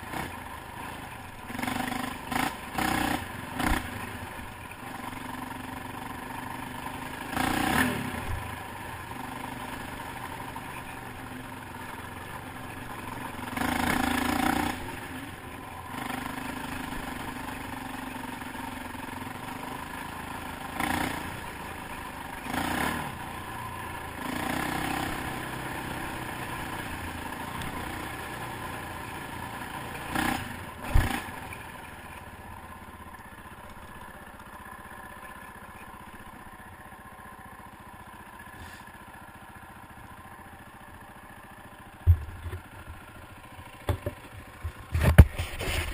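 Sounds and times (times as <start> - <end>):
atv engine revving: 0.0 - 36.6.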